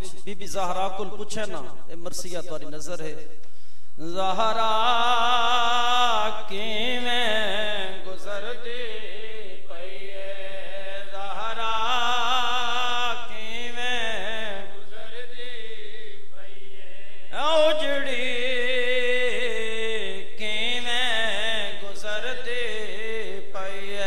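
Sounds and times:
person chanting a lament: 4.0s - 24.0s.

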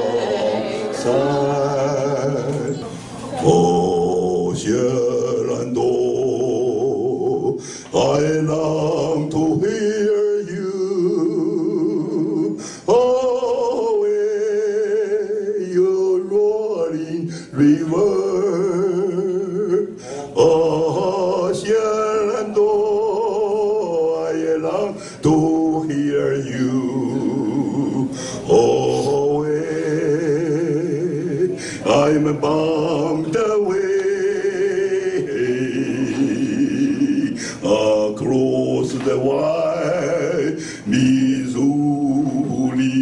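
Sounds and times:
man singing with vibrato: 0.0s - 43.0s.

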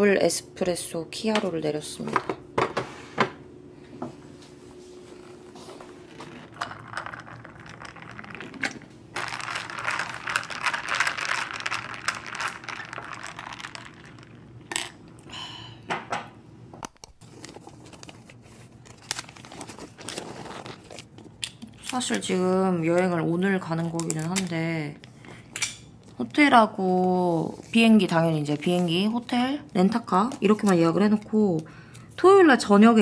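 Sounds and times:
crinkling and rustling: 4.8s - 14.8s, 17.1s - 22.3s.

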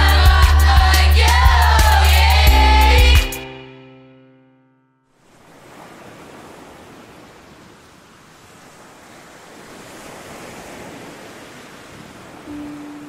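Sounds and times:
surf: 0.0s - 3.9s
wind: 5.1s - 13.0s.

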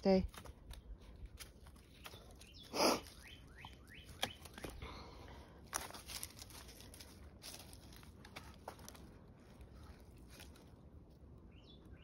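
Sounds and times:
rustling in dry brush: 0.1s - 4.7s, 5.6s - 11.4s
twigs snapping: 0.2s - 4.8s, 5.6s - 11.0s
faint bird chirps: 1.9s - 4.8s.

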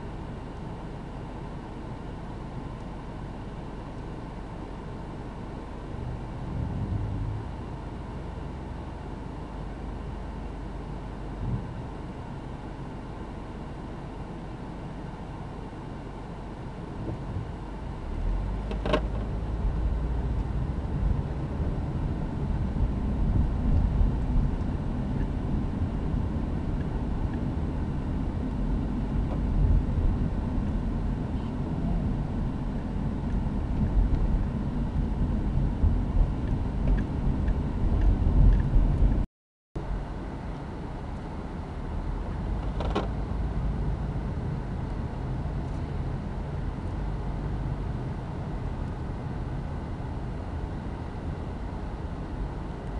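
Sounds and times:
car engine running: 0.0s - 39.2s
road rumble: 0.0s - 52.9s.

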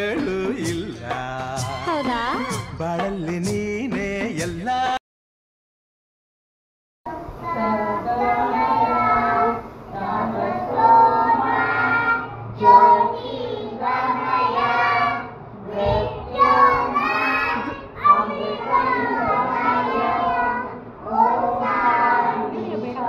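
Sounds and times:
children singing: 7.1s - 23.0s.

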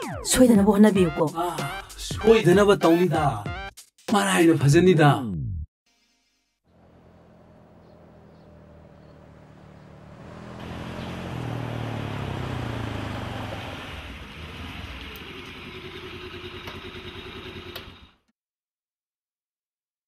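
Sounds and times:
scooters and car driving past: 6.7s - 18.2s.

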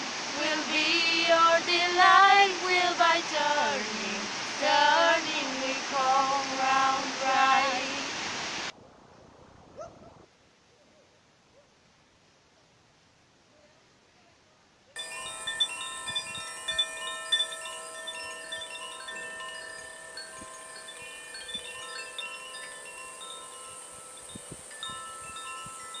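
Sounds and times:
wind chimes ringing: 15.0s - 26.0s.

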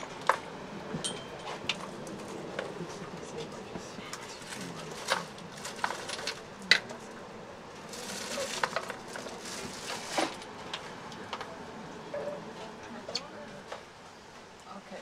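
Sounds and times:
plastic bag rustling: 7.9s - 10.4s.

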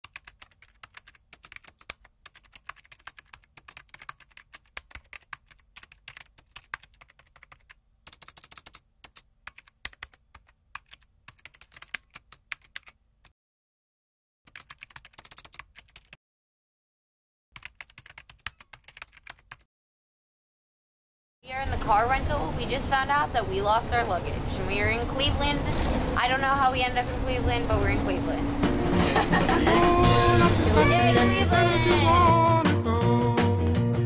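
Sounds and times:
keyboard typing clicks: 0.0s - 13.0s.

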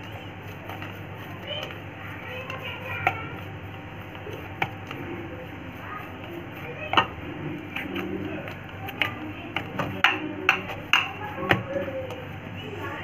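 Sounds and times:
dough kneaded by hand: 0.0s - 13.0s
sharp knocks on a ceramic plate: 9.8s - 11.7s.

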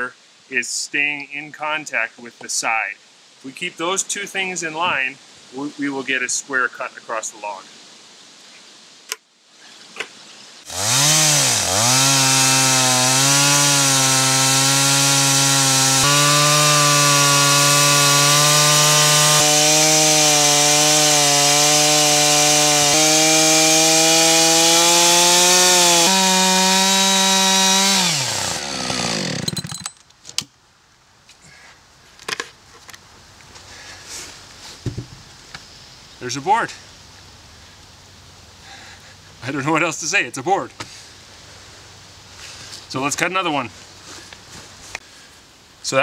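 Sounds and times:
chainsaw cutting through log: 10.6s - 29.9s.

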